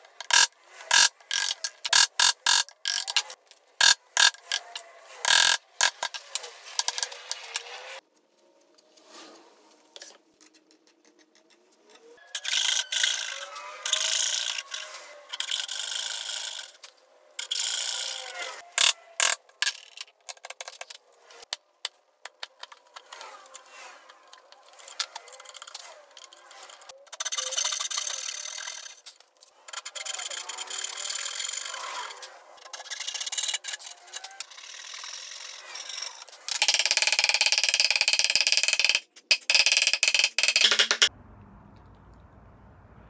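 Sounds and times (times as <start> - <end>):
chisel scraping: 22.2 - 37.4.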